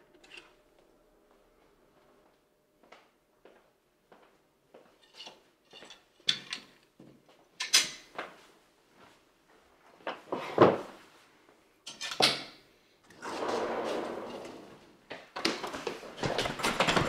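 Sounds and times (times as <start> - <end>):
chair pulled out: 13.1 - 15.2.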